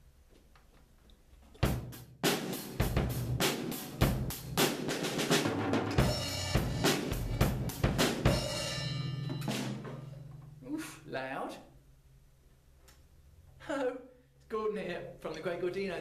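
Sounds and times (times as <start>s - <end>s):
drum hits: 1.6s - 10.6s
cymbal crashes: 5.9s - 10.7s.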